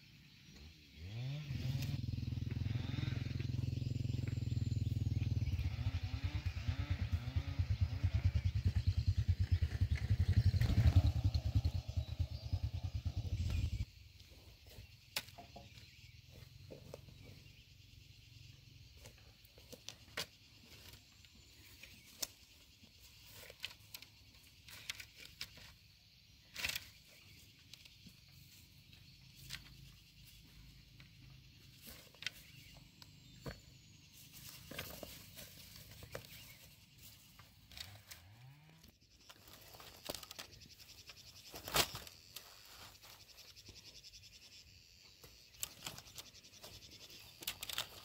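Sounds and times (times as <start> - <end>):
motorcycle engine running: 1.0 - 13.9.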